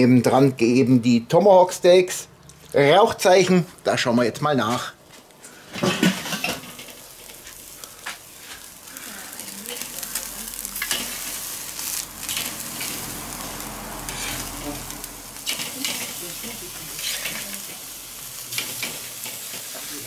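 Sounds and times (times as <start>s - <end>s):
meat sizzling on grill: 5.1s - 20.0s.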